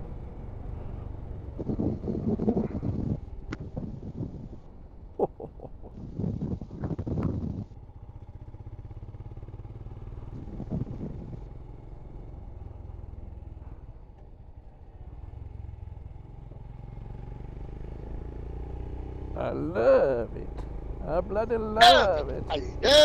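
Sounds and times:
motorcycle engine cruising: 0.0s - 23.0s
wind noise on microphone: 1.5s - 4.7s, 5.9s - 7.7s, 10.3s - 11.5s.

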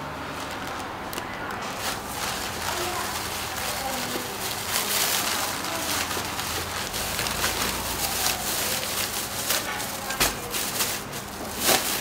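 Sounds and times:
paper and plastic bag rustling: 0.2s - 12.0s.

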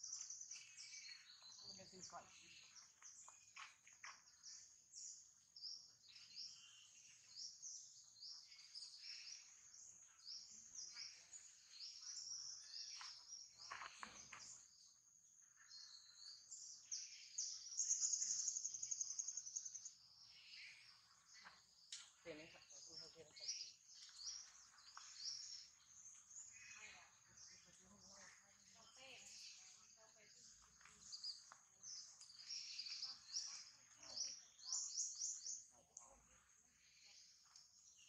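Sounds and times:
small birds chirping: 0.0s - 38.0s.

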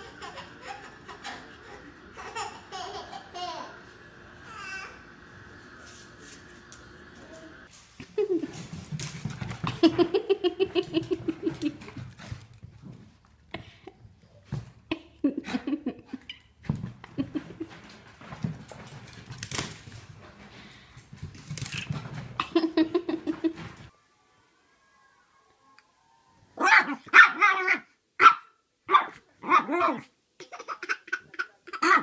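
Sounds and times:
baby giggling: 0.0s - 3.8s, 30.4s - 32.0s.

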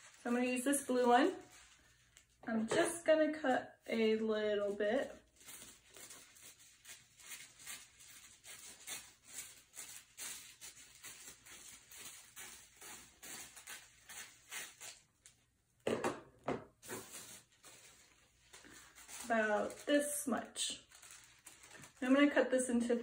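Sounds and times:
paper crinkling and rustling: 0.0s - 2.4s, 5.0s - 15.0s, 16.8s - 22.4s
scissors snipping tissue paper: 5.4s - 15.4s.

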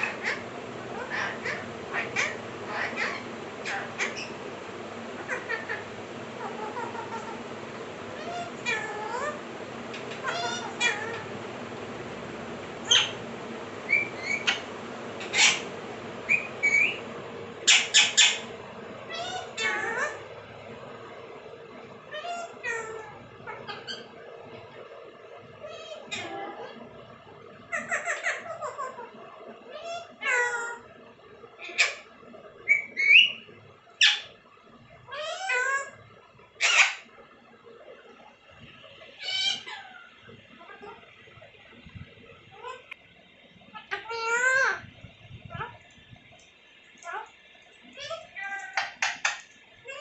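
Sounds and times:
parakeets squawking harshly: 0.0s - 4.5s, 5.2s - 7.5s, 8.1s - 11.5s, 12.8s - 20.3s, 22.1s - 24.1s, 25.7s - 26.8s, 27.7s - 29.1s, 31.6s - 32.1s, 35.1s - 36.0s, 36.6s - 37.1s, 39.2s - 41.0s, 43.8s - 44.9s
parakeets whistling and screeching: 0.0s - 4.5s, 5.1s - 11.5s, 12.8s - 20.4s, 22.1s - 24.2s, 25.6s - 26.8s, 27.7s - 29.1s, 29.7s - 30.9s, 31.6s - 34.4s, 35.1s - 36.0s, 36.6s - 37.1s, 39.2s - 41.1s, 42.4s - 43.0s, 43.7s - 45.8s, 47.0s - 47.3s, 47.9s - 50.0s.

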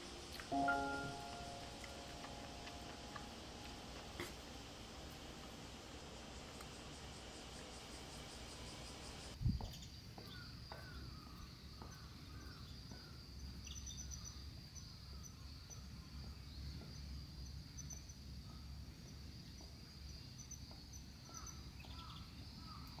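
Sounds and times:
high-pitched insect drone: 0.0s - 9.4s
insect chirping trills: 0.0s - 23.0s.

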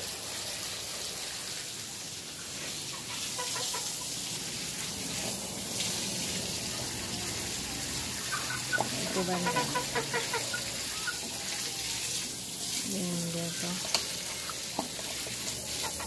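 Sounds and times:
chickens clucking: 2.8s - 4.2s, 8.1s - 11.4s, 15.0s - 16.0s.

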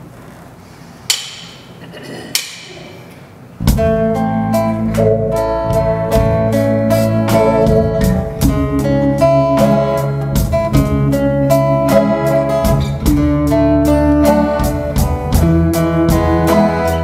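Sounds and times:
praise band playing: 3.3s - 17.0s
steady drum beat: 3.6s - 17.0s.

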